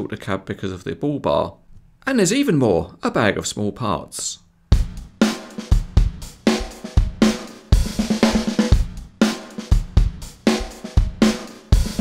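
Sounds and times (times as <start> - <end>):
drum kit beat: 4.7 - 12.0.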